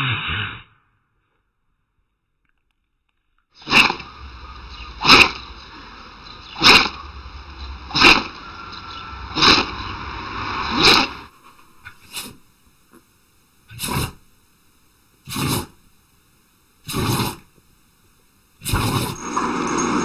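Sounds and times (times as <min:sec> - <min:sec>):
dog sneezing: 0:03.6 - 0:04.0, 0:13.7 - 0:14.2, 0:15.3 - 0:15.8, 0:16.8 - 0:17.5, 0:18.6 - 0:19.2.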